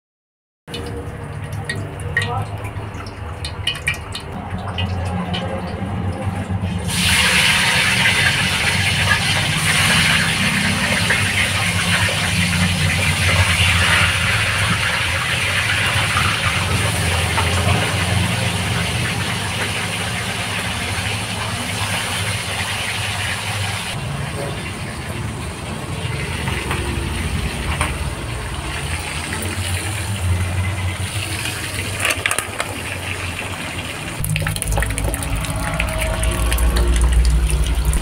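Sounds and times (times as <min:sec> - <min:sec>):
fish frying in hot oil: 0:00.7 - 0:38.0
low hum: 0:34.2 - 0:38.0.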